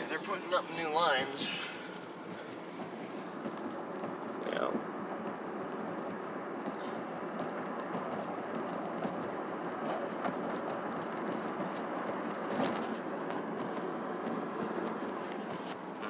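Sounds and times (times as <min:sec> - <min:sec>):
road and tyre noise in car: 0:00.0 - 0:16.0.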